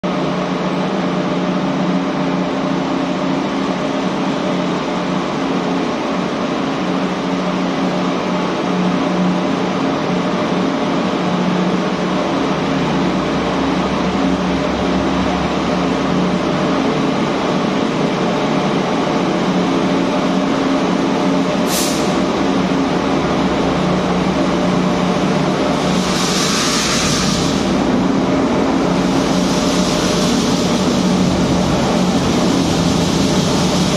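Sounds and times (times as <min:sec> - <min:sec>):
diesel locomotive engine drone: 0:00.0 - 0:33.9
rail noise: 0:00.0 - 0:33.9
air hissing: 0:21.6 - 0:22.3, 0:25.7 - 0:28.0, 0:28.9 - 0:33.9.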